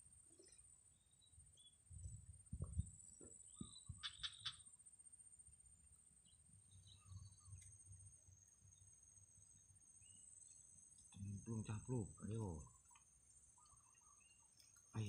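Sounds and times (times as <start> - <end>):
faint high whine: 0.0 - 15.0
soft low thumps: 1.9 - 4.0.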